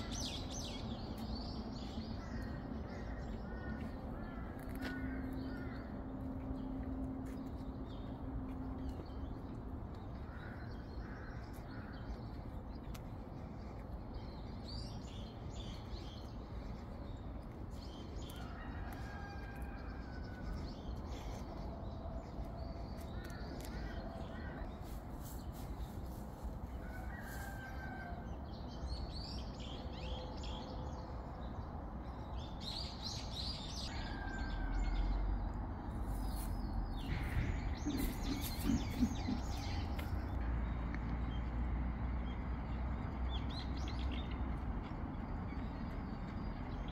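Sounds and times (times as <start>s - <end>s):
steady low rumble: 0.0s - 26.8s, 35.0s - 42.1s
birds chirping and calling: 36.4s - 40.3s.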